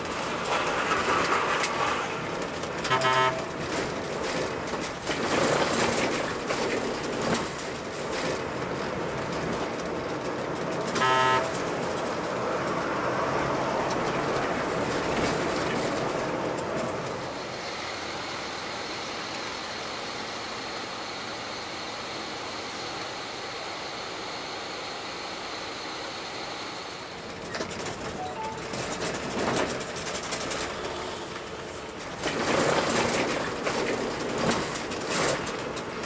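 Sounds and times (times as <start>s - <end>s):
bus engine rumble: 0.0s - 36.0s
road noise: 0.0s - 36.0s
bus horn blasts: 2.8s - 3.8s, 10.9s - 11.7s.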